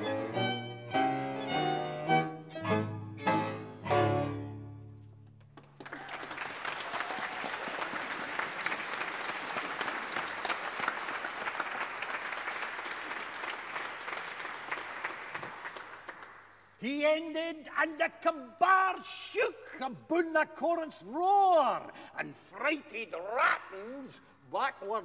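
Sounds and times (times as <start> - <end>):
audience applauding: 5.5 - 16.8.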